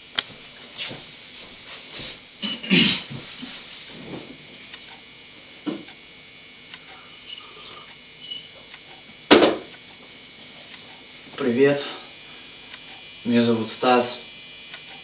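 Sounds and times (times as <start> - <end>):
mug set down on wooden table: 9.3 - 9.7.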